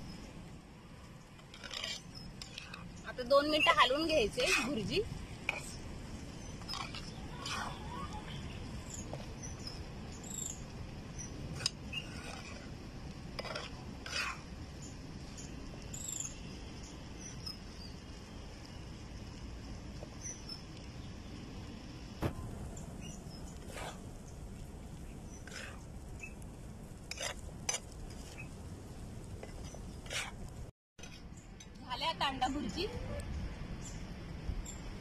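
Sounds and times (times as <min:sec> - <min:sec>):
metal spatula scraping iron pan: 0:01.5 - 0:02.8, 0:27.1 - 0:27.8
birds chirping: 0:02.0 - 0:10.6, 0:22.6 - 0:26.4.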